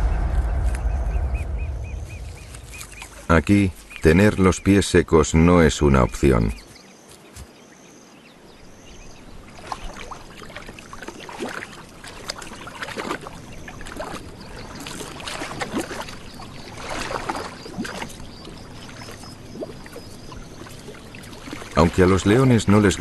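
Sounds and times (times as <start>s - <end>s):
animals splashing through water: 8.7s - 23.0s.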